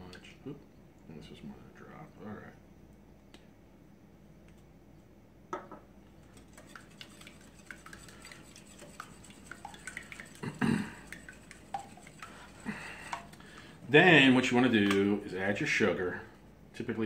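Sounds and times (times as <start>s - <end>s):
whisk clicking against glass bowl: 6.2s - 13.4s.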